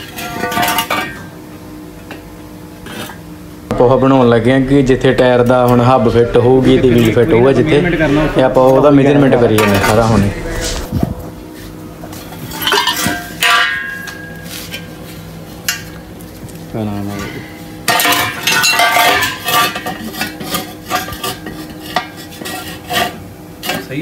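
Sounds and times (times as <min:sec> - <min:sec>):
metal scraping and clatter: 0:03.8 - 0:11.3.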